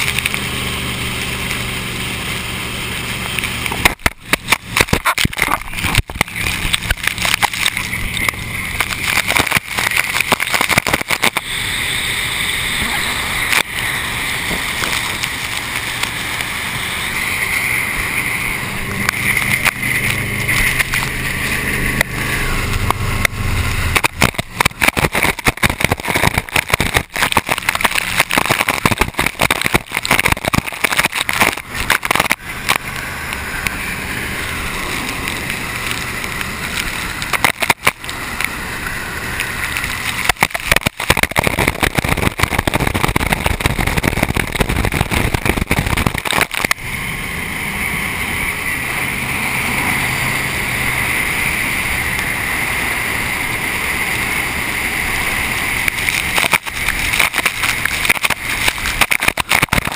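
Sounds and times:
boat engine drone: 0:00.0 - 0:59.9
spray hissing off hull: 0:00.0 - 0:59.9
water hitting camera: 0:00.0 - 0:59.9
wind buffeting: 0:41.2 - 0:59.9.

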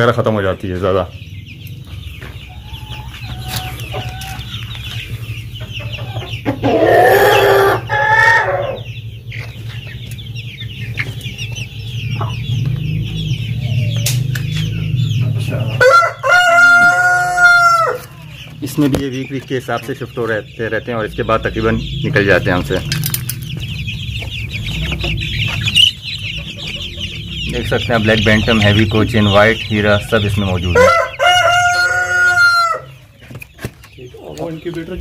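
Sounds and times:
chicks peeping: 0:00.0 - 0:35.0
rooster crowing: 0:06.6 - 0:08.9, 0:15.8 - 0:18.3, 0:30.6 - 0:33.0.

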